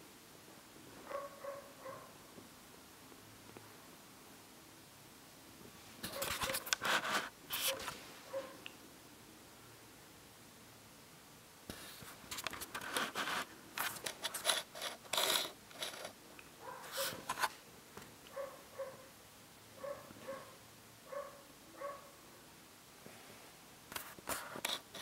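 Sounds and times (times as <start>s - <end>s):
handling rustling and scraping: 5.8s - 8.6s, 11.7s - 18.5s, 23.9s - 25.0s.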